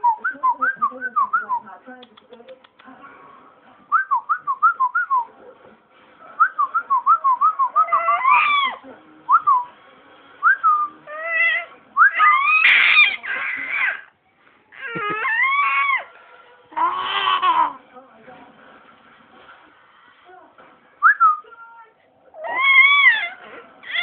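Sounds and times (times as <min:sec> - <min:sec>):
baby squealing: 0:07.8 - 0:08.8, 0:11.1 - 0:14.1, 0:14.8 - 0:16.1, 0:16.8 - 0:17.8, 0:22.4 - 0:24.0.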